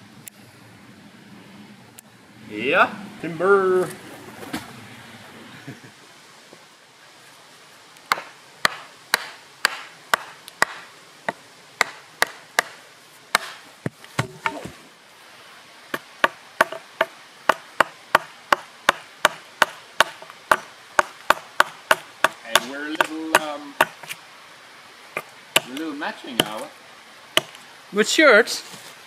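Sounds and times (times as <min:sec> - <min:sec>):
hatchet chopping wood: 0:08.1 - 0:14.7, 0:15.9 - 0:24.2, 0:25.2 - 0:26.7, 0:27.4 - 0:27.6.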